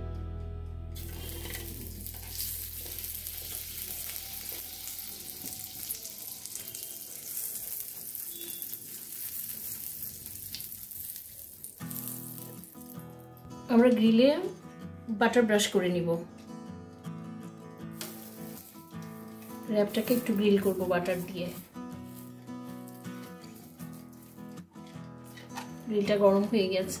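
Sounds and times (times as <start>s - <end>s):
butter sizzling on a grill: 1.0s - 13.2s, 17.9s - 24.6s.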